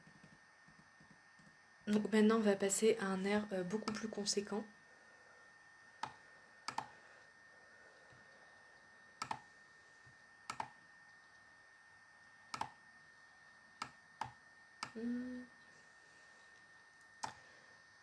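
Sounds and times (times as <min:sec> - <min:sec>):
computer mouse clicks: 0:06.0 - 0:06.9, 0:09.2 - 0:09.5, 0:10.5 - 0:10.8, 0:12.5 - 0:12.8, 0:13.8 - 0:15.0, 0:17.0 - 0:17.4.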